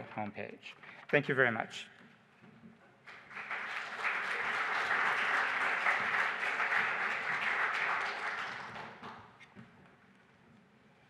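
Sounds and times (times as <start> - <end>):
audience applauding: 3.1 - 9.3.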